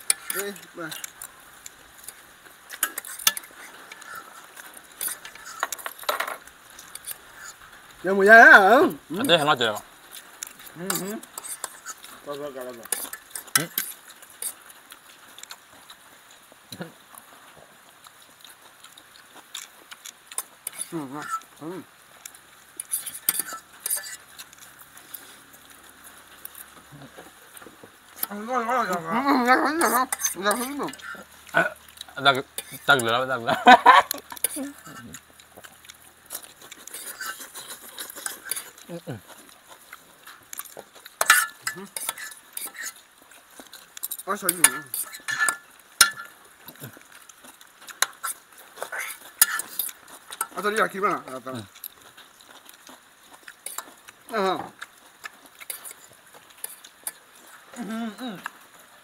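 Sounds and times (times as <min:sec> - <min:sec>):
cutlery clinking on enamel pots: 0:00.0 - 0:01.2, 0:02.1 - 0:04.2, 0:05.0 - 0:07.5, 0:12.8 - 0:14.6, 0:22.8 - 0:24.2, 0:29.5 - 0:35.1, 0:40.6 - 0:43.0, 0:44.0 - 0:46.8, 0:48.0 - 0:51.6
person speaking: 0:00.2 - 0:01.0, 0:10.8 - 0:11.3, 0:20.8 - 0:21.9, 0:28.2 - 0:35.2, 0:38.8 - 0:39.3, 0:44.2 - 0:45.0, 0:57.8 - 0:58.5
metal forks clinking on pots: 0:22.9 - 0:24.2, 0:29.8 - 0:31.2, 0:41.2 - 0:42.9, 0:44.0 - 0:46.3, 0:49.0 - 0:50.5.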